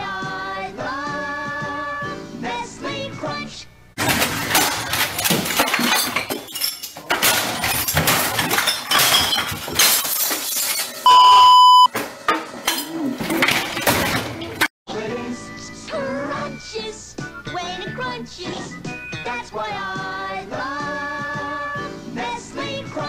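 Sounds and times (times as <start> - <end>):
glass breaking: 4.0 - 11.1
objects crashing and clattering: 4.0 - 11.1, 12.0 - 14.7
censor bleep: 11.1 - 11.9.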